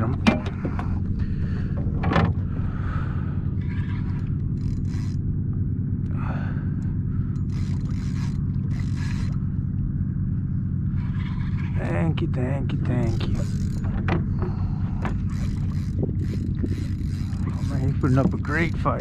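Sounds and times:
steady low hum: 0:00.0 - 0:19.0
fishing reel cranking: 0:03.7 - 0:05.3, 0:06.0 - 0:09.5, 0:12.9 - 0:19.0
reel drag clicking: 0:03.7 - 0:05.3, 0:06.8 - 0:09.5, 0:13.1 - 0:19.0.

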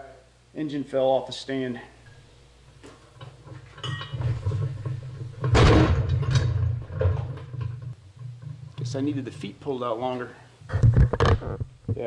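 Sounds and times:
metal scraping and knocking: 0:03.1 - 0:09.9, 0:10.7 - 0:12.0.

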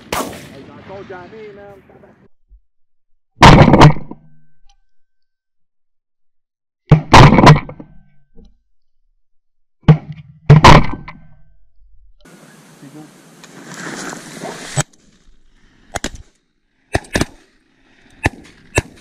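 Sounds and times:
shotgun blasts: 0:00.0 - 0:00.8, 0:16.9 - 0:17.5, 0:18.2 - 0:19.0.

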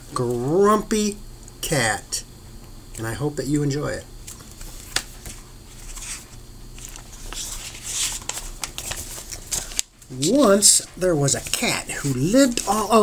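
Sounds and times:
book pages rustling: 0:04.2 - 0:13.0.

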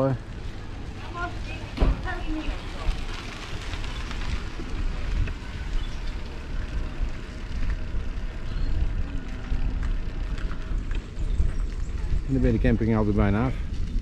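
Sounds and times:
wind buffeting microphone: 0:00.2 - 0:14.0.

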